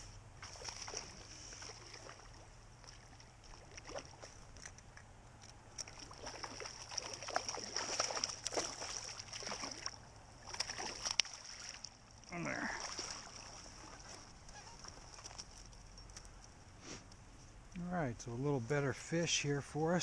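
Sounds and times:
fish splashing at surface: 0:00.4 - 0:04.4, 0:05.8 - 0:15.7.

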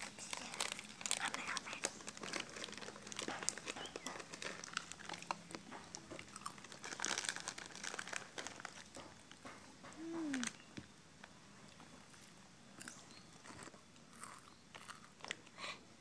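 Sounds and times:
plastic wrappers crinkling: 0:00.0 - 0:10.6.

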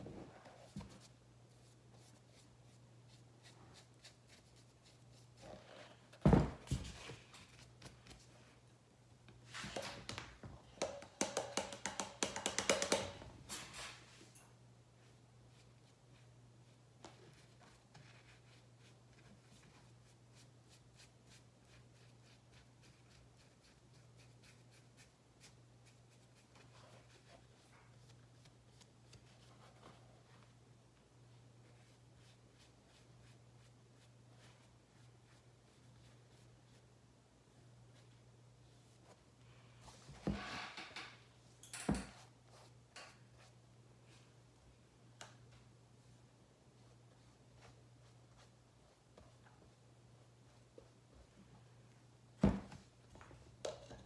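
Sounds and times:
paintbrush dabbing paint: 0:00.3 - 0:05.8, 0:31.7 - 0:36.9, 0:42.2 - 0:43.6.

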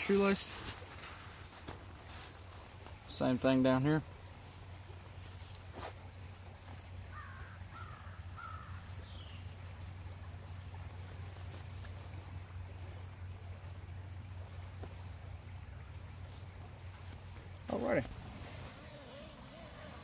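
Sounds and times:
bird calling: 0:07.1 - 0:09.6, 0:17.6 - 0:20.0.

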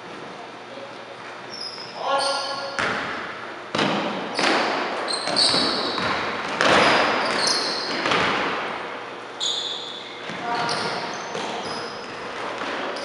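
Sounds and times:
sneakers squeaking: 0:00.0 - 0:13.0
basketball bouncing on hardwood: 0:05.3 - 0:08.5.

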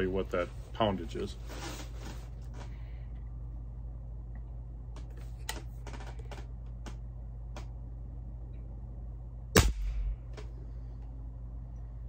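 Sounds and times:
air rifle shot: 0:09.5 - 0:10.4.

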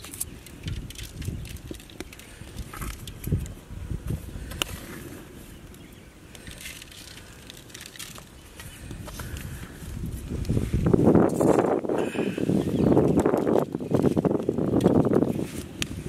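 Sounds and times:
pepper sprinkling clicks and rustles: 0:00.0 - 0:03.6, 0:05.6 - 0:09.7.

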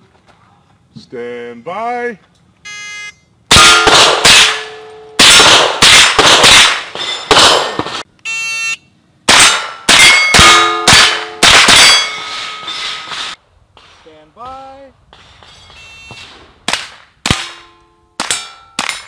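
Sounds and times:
steel plate ringing clang: 0:03.5 - 0:08.0, 0:09.3 - 0:13.4, 0:17.3 - 0:19.0
rapid gunshots: 0:05.2 - 0:08.0.

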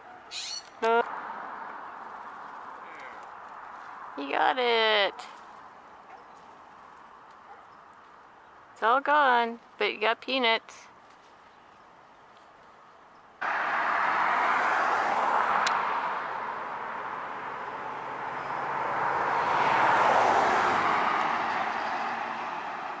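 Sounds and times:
cars passing by: 0:00.0 - 0:11.0, 0:11.6 - 0:23.0.

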